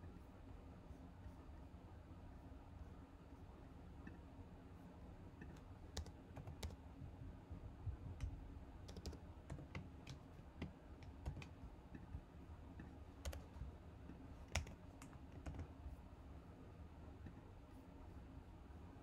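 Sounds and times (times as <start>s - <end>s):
typing on computer keyboard: 5.4s - 7.1s, 7.9s - 12.1s, 12.8s - 13.6s, 14.4s - 15.8s.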